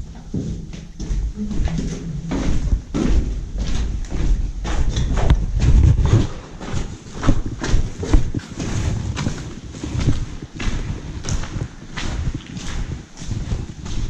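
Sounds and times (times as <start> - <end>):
footsteps on concrete stairs: 0.0 - 14.0
low rumble: 0.7 - 6.4.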